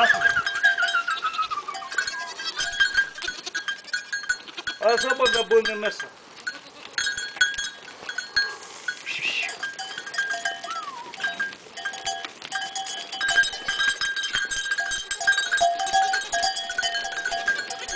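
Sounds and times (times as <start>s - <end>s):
goat bleating: 0.0s - 5.2s, 6.3s - 7.2s, 17.3s - 17.9s
goat bells clanking: 0.0s - 17.9s.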